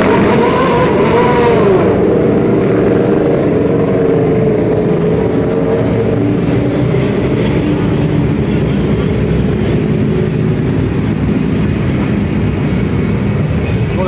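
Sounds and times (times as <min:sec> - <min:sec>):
motorcycle engines revving: 0:00.0 - 0:14.0.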